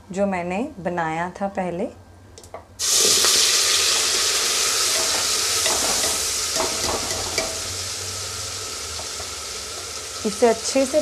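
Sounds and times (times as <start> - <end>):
paste sizzling in oil: 2.8 - 11.0.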